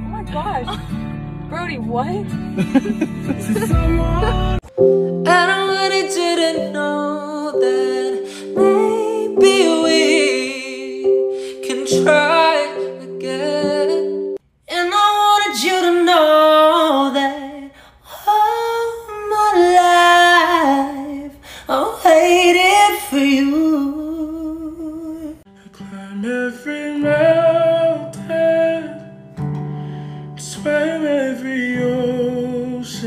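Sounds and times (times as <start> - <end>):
instrumental backing: 0.0 - 14.4
second man singing: 3.4 - 4.7
man singing unaccompanied: 3.5 - 4.7, 6.5 - 14.1, 18.3 - 29.1, 30.4 - 33.0.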